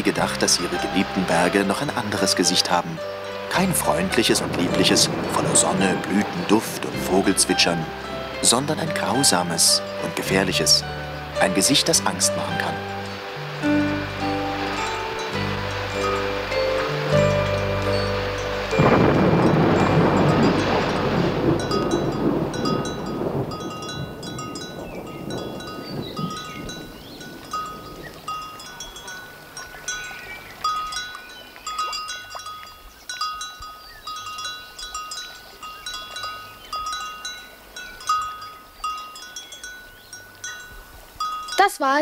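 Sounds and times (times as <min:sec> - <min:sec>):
rain: 0:00.0 - 0:42.0
bell-like chimes: 0:12.5 - 0:41.8
thunder: 0:18.8 - 0:28.0.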